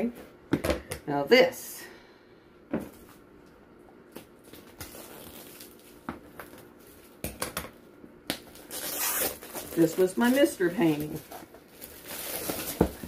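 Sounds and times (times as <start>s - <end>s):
plastic wrap crinkling: 4.1s - 7.3s, 8.4s - 13.0s.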